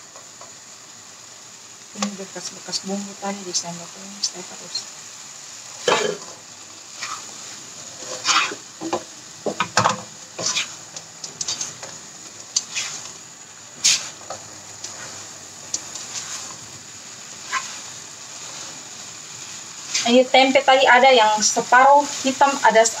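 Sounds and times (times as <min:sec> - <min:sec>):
food sizzling: 0:00.0 - 0:23.0
spatula scraping a wok: 0:05.8 - 0:09.1, 0:09.7 - 0:13.2, 0:13.8 - 0:20.1.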